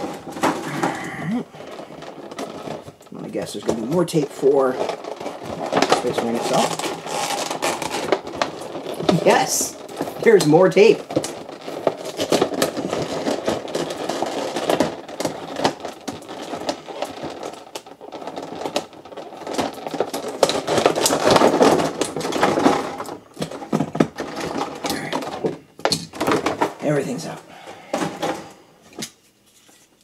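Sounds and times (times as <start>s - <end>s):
plastic packaging crackling: 0.0s - 30.0s
tape peeling off plastic: 5.0s - 10.0s.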